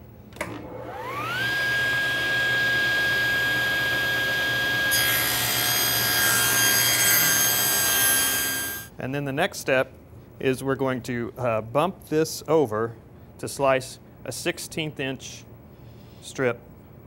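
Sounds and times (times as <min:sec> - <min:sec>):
table saw motor whining: 0:00.6 - 0:08.9.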